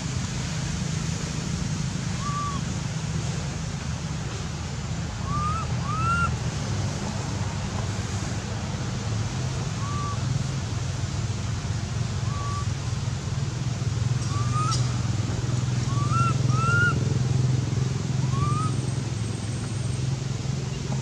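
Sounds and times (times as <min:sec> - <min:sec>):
rising and falling whistled calls: 0:02.2 - 0:02.6, 0:05.2 - 0:06.4, 0:09.5 - 0:10.4, 0:12.1 - 0:12.8, 0:14.2 - 0:15.1, 0:15.7 - 0:17.0, 0:18.2 - 0:20.0.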